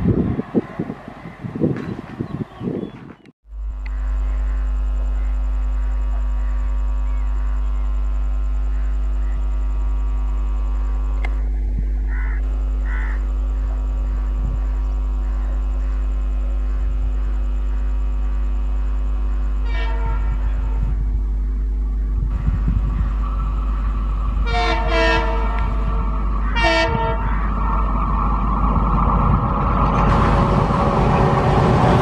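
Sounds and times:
diesel locomotive engine drone: 0.0s - 32.0s
crow-like caws: 12.1s - 17.9s
train horn: 19.5s - 21.0s, 24.4s - 27.5s.

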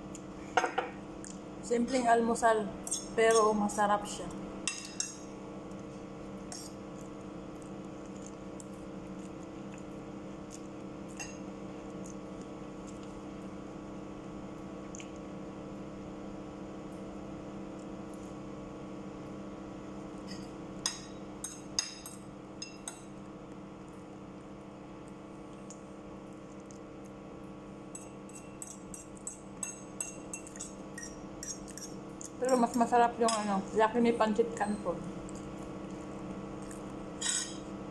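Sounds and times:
steady low hum: 0.0s - 37.9s
metal fork clinking on plate: 37.2s - 37.6s.

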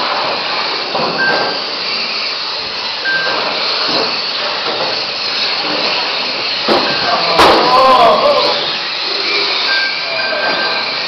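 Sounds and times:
electric motors whining: 0.0s - 11.0s
short beep: 3.0s - 3.4s, 9.6s - 11.0s.

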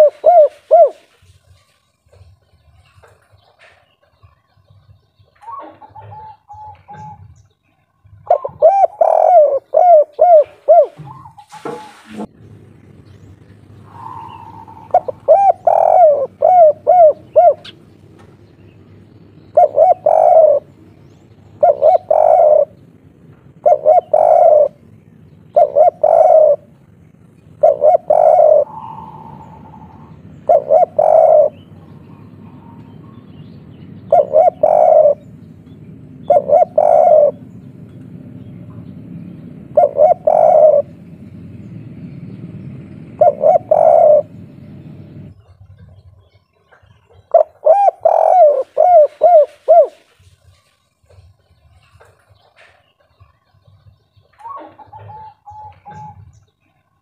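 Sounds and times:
dove cooing: 0.0s - 2.5s, 3.5s - 7.5s, 8.1s - 12.3s, 13.3s - 50.4s, 52.6s - 56.5s.

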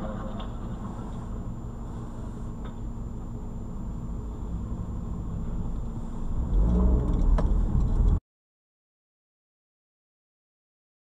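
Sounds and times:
car engine and tyre rumble: 0.0s - 8.2s.

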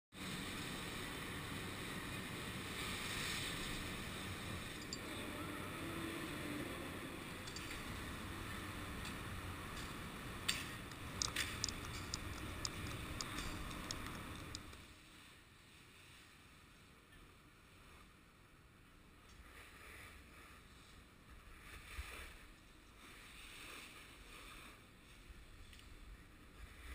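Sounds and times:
snowboard scraping over snow: 0.2s - 4.7s
sharp clicks and knocks: 9.8s - 14.8s.

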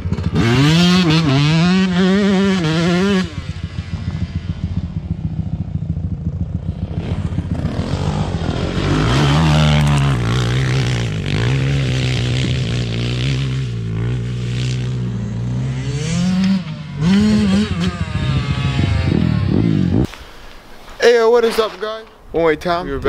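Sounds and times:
dirt bike engine revving: 0.0s - 20.2s.

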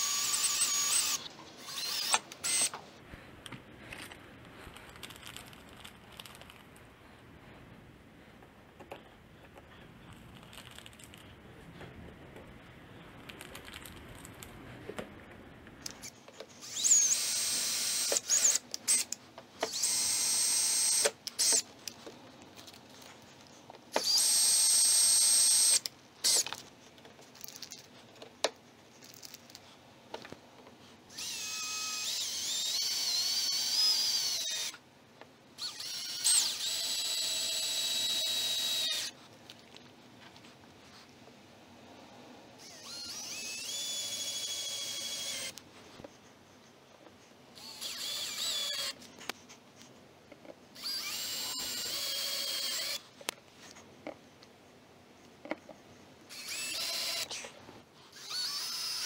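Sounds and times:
cordless drill whining: 0.0s - 2.8s, 16.0s - 21.7s, 23.9s - 26.4s, 31.1s - 34.8s, 35.6s - 39.2s, 42.6s - 45.6s, 47.6s - 49.0s, 50.8s - 53.0s, 56.3s - 57.4s, 58.1s - 59.0s.

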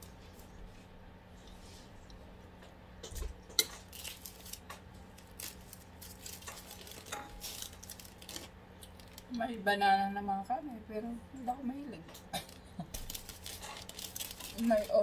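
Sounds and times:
faint steady hum: 0.0s - 15.0s
dishes and cutlery clinking: 6.4s - 7.5s.

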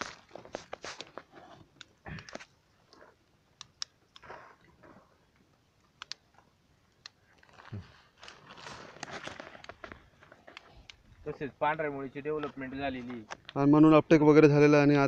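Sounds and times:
hands handling soil on plastic: 0.0s - 4.3s, 7.0s - 13.6s.

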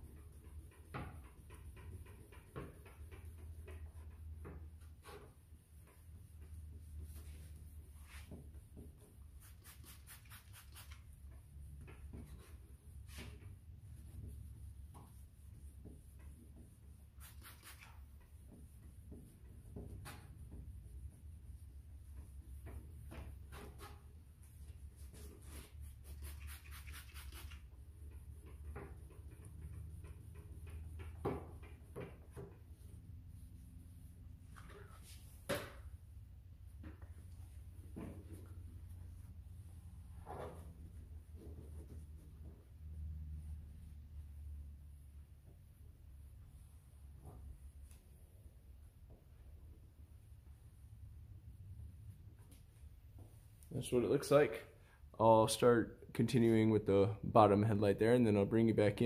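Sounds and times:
spray bottle squirting water: 9.3s - 11.1s, 17.1s - 18.2s, 25.9s - 27.8s.

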